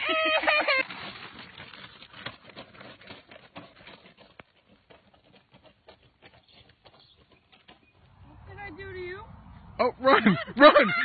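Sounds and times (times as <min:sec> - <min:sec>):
running footsteps on dirt: 0:00.4 - 0:08.8.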